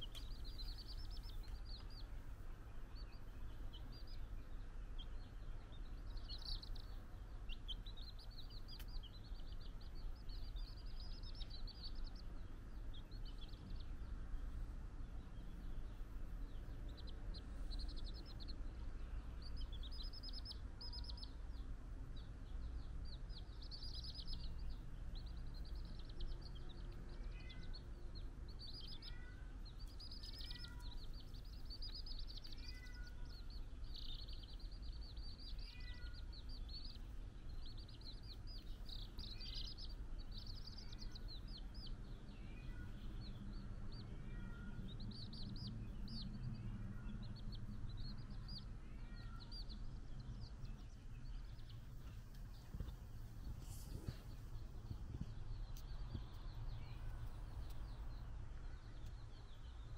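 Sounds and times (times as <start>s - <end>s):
chicks peeping: 0.0s - 59.9s.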